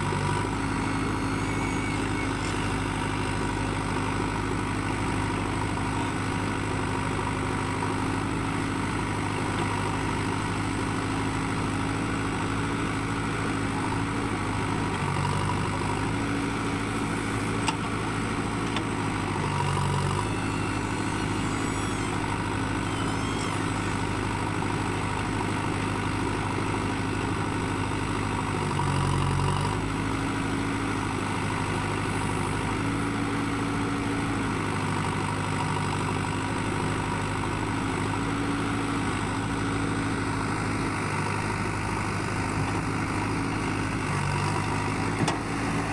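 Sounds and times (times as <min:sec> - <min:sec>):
diesel engine running: 0:00.0 - 0:45.9
backhoe digging sand: 0:08.4 - 0:27.5, 0:38.3 - 0:45.9.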